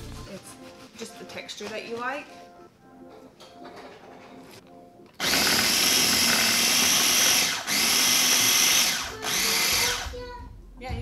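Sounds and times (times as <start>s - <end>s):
food processor whirring: 5.2s - 10.0s.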